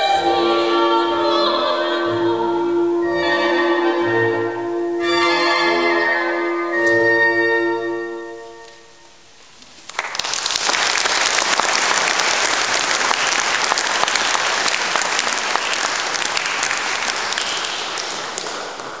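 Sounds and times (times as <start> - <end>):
audience applauding: 9.8 - 19.0.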